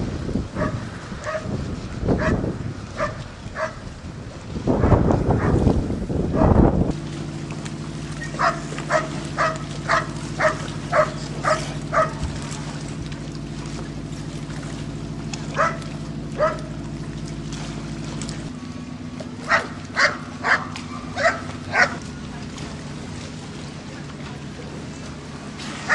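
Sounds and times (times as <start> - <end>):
low engine hum: 0.0 - 25.9
dog barking: 0.6 - 1.5, 3.0 - 3.8, 8.4 - 12.2, 15.6 - 15.8, 16.4 - 16.7, 19.5 - 22.0.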